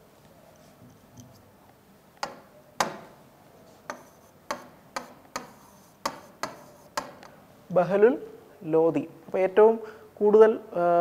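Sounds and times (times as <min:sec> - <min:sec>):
stylus tapping on glass: 0:02.2 - 0:03.1, 0:03.9 - 0:07.4.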